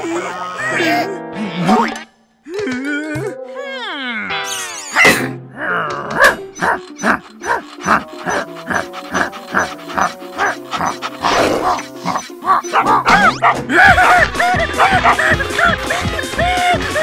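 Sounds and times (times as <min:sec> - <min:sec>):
cartoon background music: 0:00.0 - 0:17.0
cartoon dog vocal effects: 0:03.0 - 0:14.2.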